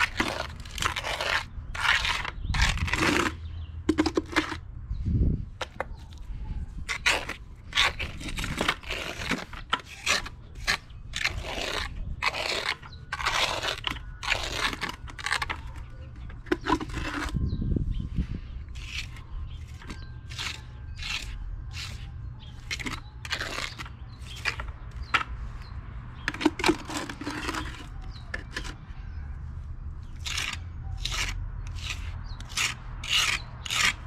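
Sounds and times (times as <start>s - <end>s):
trowel scraping wet cement: 0.0s - 4.7s, 5.6s - 17.5s, 18.7s - 28.8s, 30.0s - 34.0s.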